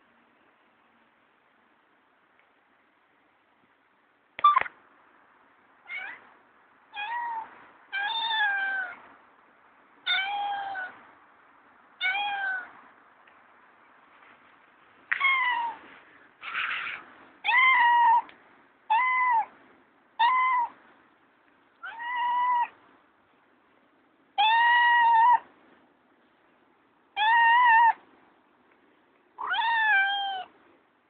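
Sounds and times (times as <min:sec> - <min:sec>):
cat meowing: 0:05.9 - 0:06.2, 0:06.9 - 0:09.0, 0:10.1 - 0:11.0, 0:12.0 - 0:12.7, 0:15.1 - 0:15.8, 0:16.4 - 0:18.3, 0:18.9 - 0:19.5, 0:20.2 - 0:20.7, 0:21.8 - 0:22.8, 0:24.4 - 0:25.4, 0:27.2 - 0:28.0, 0:29.4 - 0:30.5.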